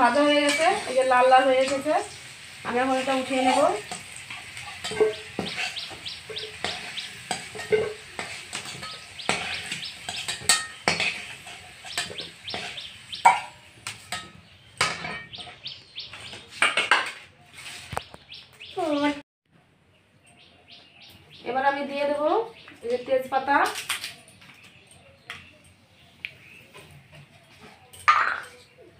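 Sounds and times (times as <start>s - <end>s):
metal spatula scraping a pan: 0.0s - 15.6s
bird chirps: 4.8s - 7.5s, 8.8s - 10.9s, 11.5s - 16.6s, 19.9s - 21.5s.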